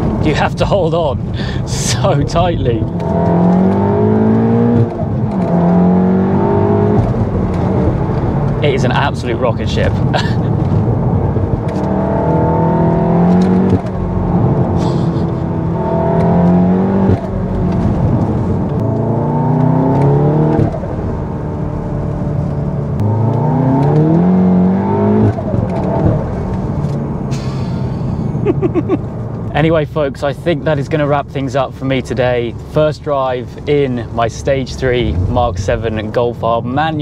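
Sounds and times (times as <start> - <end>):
car engine accelerating: 1.1 - 37.0.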